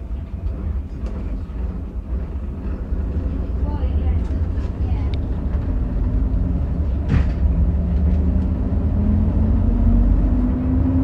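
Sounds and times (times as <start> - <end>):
diesel engine revving: 6.2 - 11.0.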